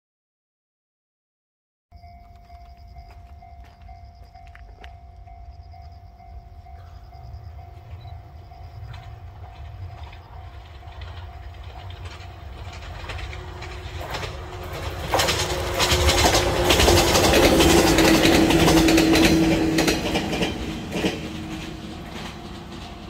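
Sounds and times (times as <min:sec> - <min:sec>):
electric train passing: 0:02.0 - 0:23.0
wheels clattering over rail joints: 0:07.7 - 0:23.0.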